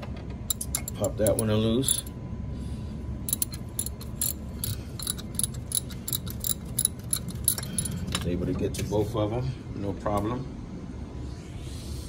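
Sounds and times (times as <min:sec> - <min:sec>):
low steady rumble: 0:00.0 - 0:12.0
ratchet clicking: 0:00.5 - 0:02.1, 0:03.3 - 0:08.0.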